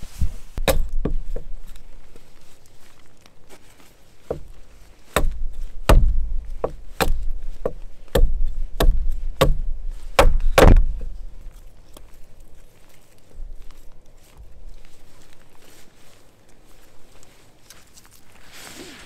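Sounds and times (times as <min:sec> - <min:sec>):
axe chopping wood: 0:00.6 - 0:01.6, 0:04.3 - 0:04.5, 0:05.1 - 0:11.2.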